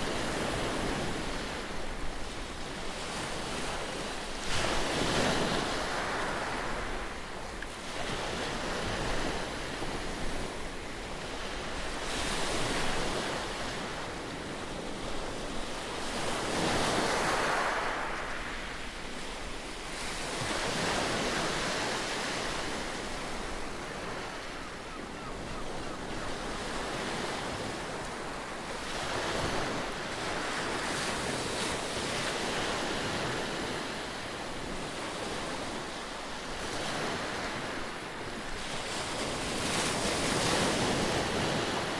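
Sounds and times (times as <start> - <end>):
waves washing up pebbly beach: 15.5 - 18.9.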